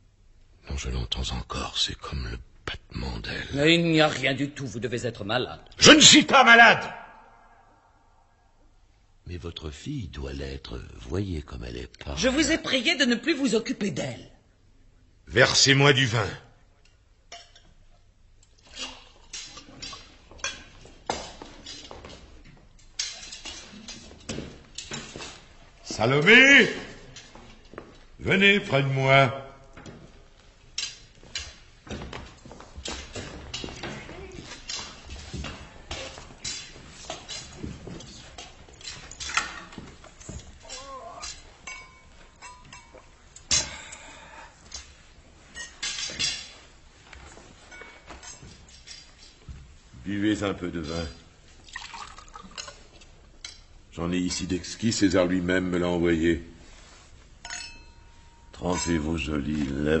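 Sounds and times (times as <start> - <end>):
cups and tableware clinking: 17.3 - 25.4, 30.8 - 43.8, 44.6 - 46.7, 47.3 - 49.5, 51.6 - 54.4, 57.4 - 59.8
wine pouring: 51.6 - 53.0.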